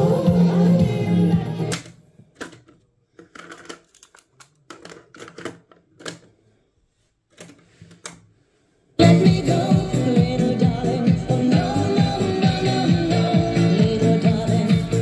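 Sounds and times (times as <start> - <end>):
music: 0.0 - 1.8, 9.0 - 15.0.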